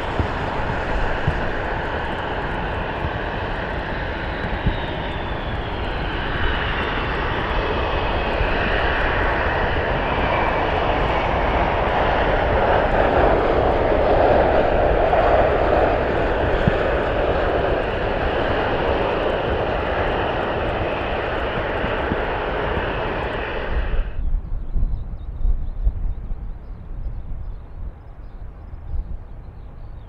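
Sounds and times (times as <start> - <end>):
jet engines running loud: 0.0 - 24.6
low uneven rumble: 0.0 - 25.2.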